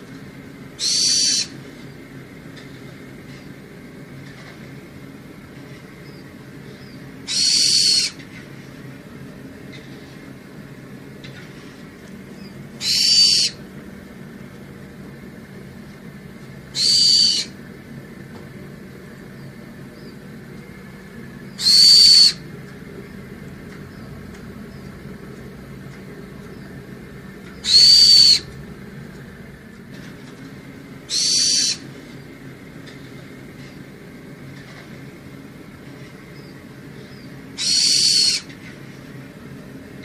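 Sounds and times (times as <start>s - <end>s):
high-pitched bird call: 0.8s - 1.6s, 6.8s - 8.2s, 12.4s - 13.6s, 16.7s - 17.6s, 21.5s - 22.4s, 27.5s - 28.6s, 31.1s - 31.8s, 37.1s - 38.5s.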